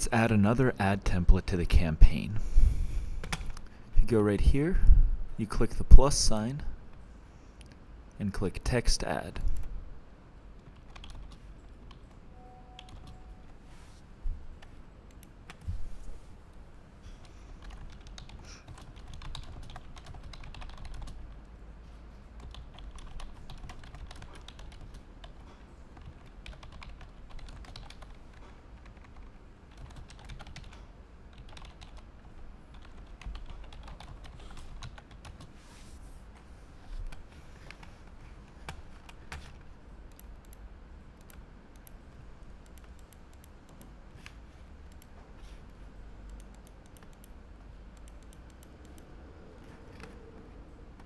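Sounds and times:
keyboard typing: 10.6 - 13.6, 17.6 - 21.3, 22.4 - 32.1, 32.7 - 35.5, 41.2 - 45.2, 46.2 - 50.2.

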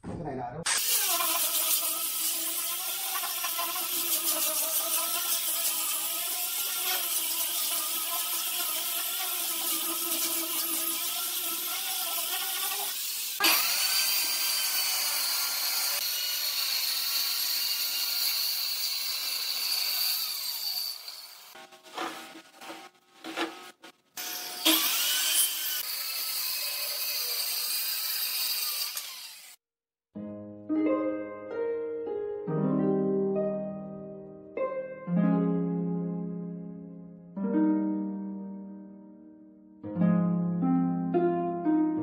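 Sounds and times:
angle grinder sanding wood: 0.7 - 29.6
circular saw cutting wood: 0.7 - 29.6.

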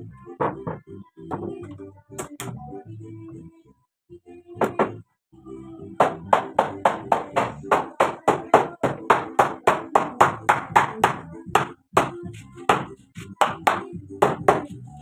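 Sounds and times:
hammer striking wooden door frame: 6.0 - 14.7.

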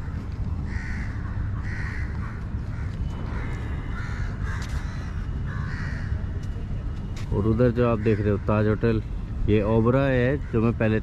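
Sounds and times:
crows cawing: 0.0 - 6.3, 7.8 - 8.8, 10.2 - 11.0
steady low rumble: 0.0 - 11.0.

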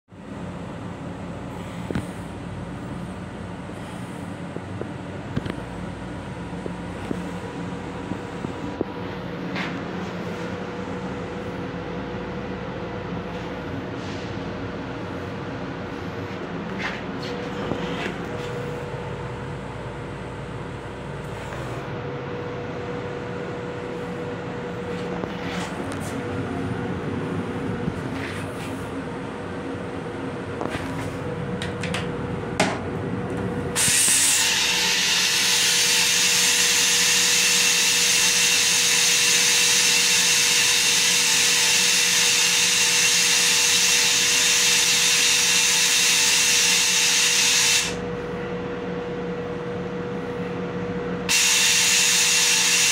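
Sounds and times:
steady hum: 0.1 - 52.9
train rumble: 0.6 - 37.0
toilet flushing hissing rush: 33.8 - 48.0, 51.3 - 52.9.

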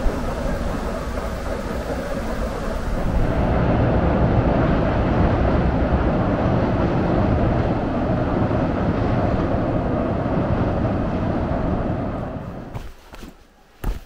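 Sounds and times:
train rumbling over steel bridge: 0.0 - 14.0.

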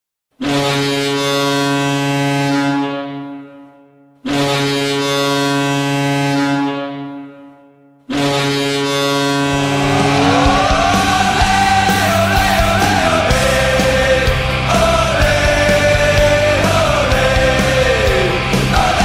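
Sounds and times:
deep goal horn blasts: 0.4 - 13.4
music: 8.9 - 19.0.

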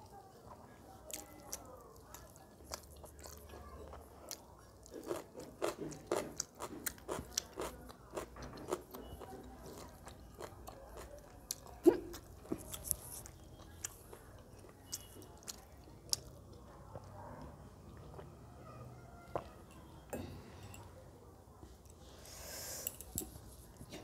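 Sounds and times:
person chewing food: 0.5 - 17.1, 17.9 - 18.3.

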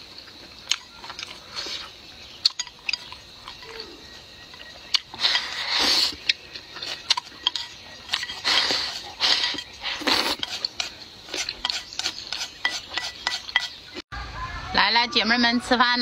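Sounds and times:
person chewing: 0.1 - 13.6
loud slurp: 5.1 - 7.2, 8.1 - 12.5.

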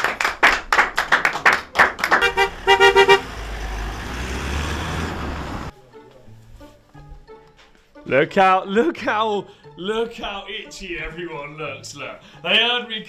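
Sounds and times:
hand clapping: 0.0 - 2.4
car horn short beeps: 2.2 - 3.3
car engine and tyres rumbling: 2.2 - 5.7.

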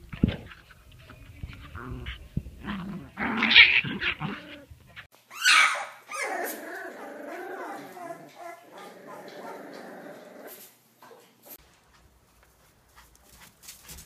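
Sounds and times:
puppies growling and yipping: 1.4 - 10.7
puppy yelp: 5.3 - 9.6.

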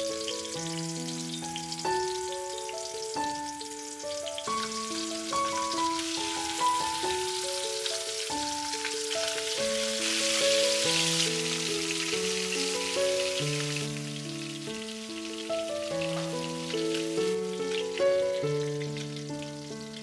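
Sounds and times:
background music melody: 0.0 - 20.0
fish sizzling in hot oil: 0.0 - 20.0.

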